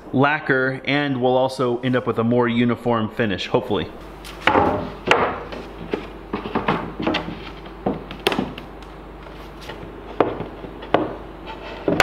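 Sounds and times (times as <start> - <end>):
wooden panels knocking on workbench: 4.4 - 8.7, 10.1 - 12.0.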